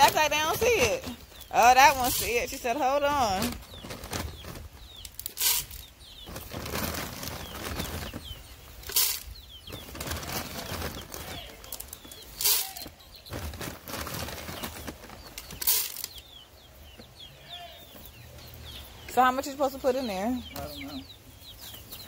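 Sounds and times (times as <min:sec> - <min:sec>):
rustling in straw: 0:00.0 - 0:16.1
loud rustling bursts: 0:00.0 - 0:16.2
chicks peeping faintly: 0:00.0 - 0:22.0.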